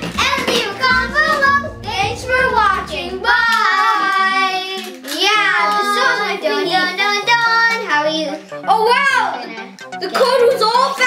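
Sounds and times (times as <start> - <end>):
children singing: 0.0 - 8.6
background music with bass line: 0.0 - 11.0.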